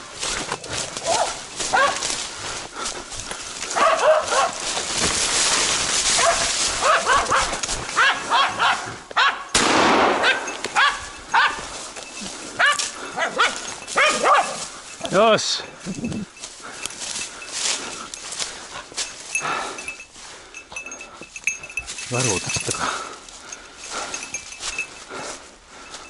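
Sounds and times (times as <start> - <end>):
rustling through undergrowth: 0.0 - 26.0
dogs barking: 1.0 - 2.3, 3.5 - 4.9, 6.0 - 9.5, 10.1 - 14.9.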